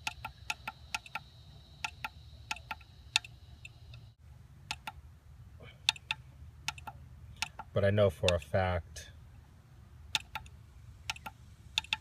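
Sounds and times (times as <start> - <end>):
device push-buttons clicking: 0.0 - 4.0, 4.6 - 5.0, 5.8 - 8.4, 10.1 - 12.0
faint high whine: 0.0 - 4.5
low steady hum: 0.0 - 12.0.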